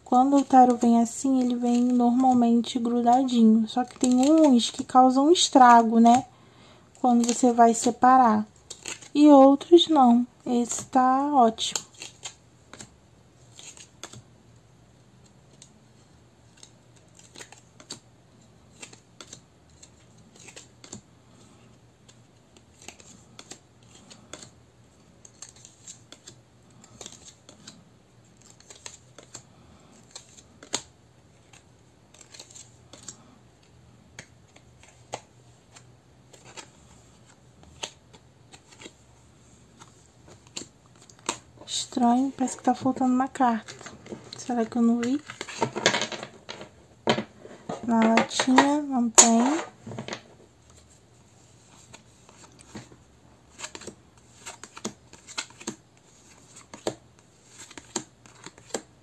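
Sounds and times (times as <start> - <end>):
cards clicking and snapping: 3.8 - 4.8, 8.6 - 9.1, 11.7 - 12.9, 13.5 - 14.2, 16.5 - 18.0, 18.7 - 21.0, 22.0 - 27.8, 28.4 - 29.4, 30.0 - 39.0, 39.7 - 41.5, 53.5 - 58.9.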